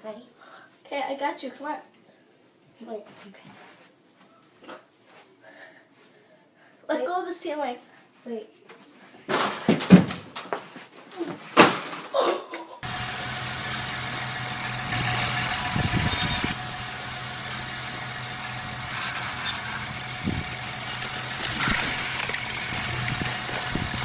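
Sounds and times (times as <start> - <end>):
baler and tractor drone: 12.8 - 24.0.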